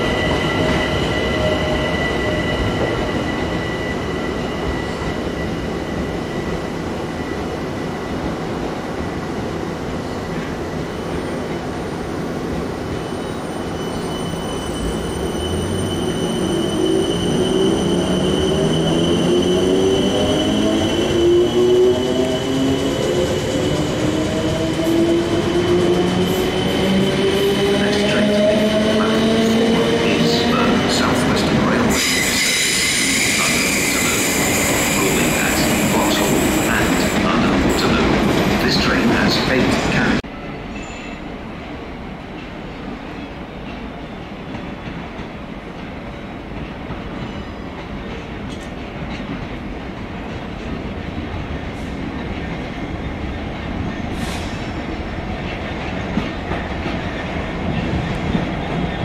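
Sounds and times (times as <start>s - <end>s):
train wheel squeal: 0.0s - 7.5s, 12.9s - 24.5s, 29.0s - 38.0s, 40.6s - 41.3s, 47.2s - 47.8s.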